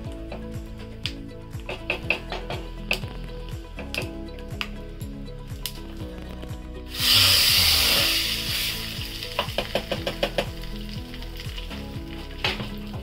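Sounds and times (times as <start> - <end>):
hot oil sizzling: 6.9 - 13.0.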